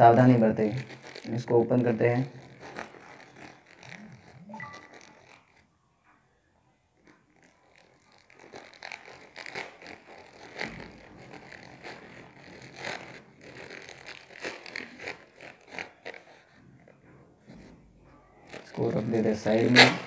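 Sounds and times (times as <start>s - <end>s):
plastic mailer tearing: 0.0s - 5.6s, 7.3s - 16.5s, 18.4s - 20.0s.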